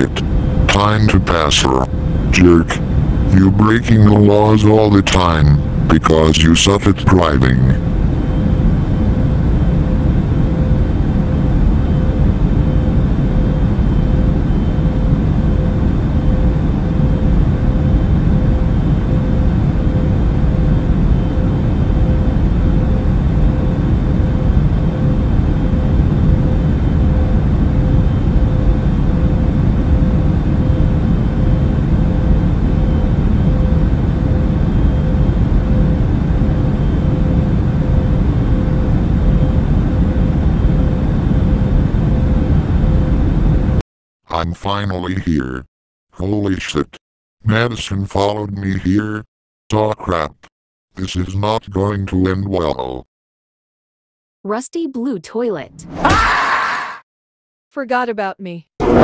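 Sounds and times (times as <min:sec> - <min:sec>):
faint steady hum: 0:00.0 - 0:43.8.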